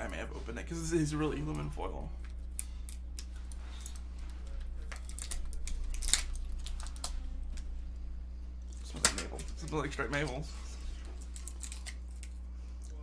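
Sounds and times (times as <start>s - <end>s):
low steady hum: 0.0s - 13.0s
foil wrapper crinkling: 4.8s - 7.2s, 11.1s - 12.4s.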